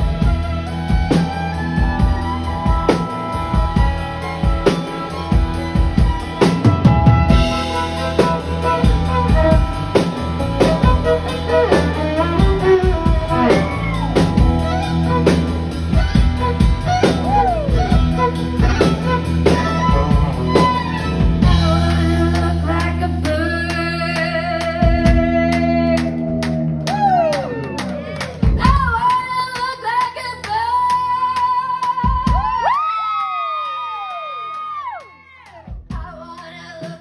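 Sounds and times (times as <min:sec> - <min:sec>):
sliding lead melody: 0:00.0 - 0:29.4
live band playing: 0:00.0 - 0:33.0.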